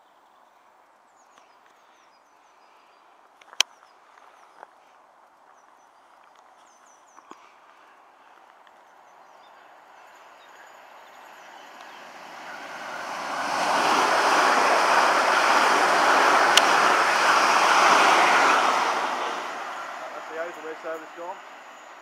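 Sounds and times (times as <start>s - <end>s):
electric train running past: 9.5s - 22.0s.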